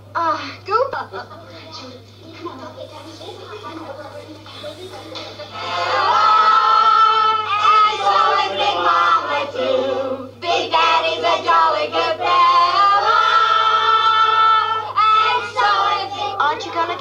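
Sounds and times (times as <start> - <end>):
children and woman singing: 10.3 - 17.0.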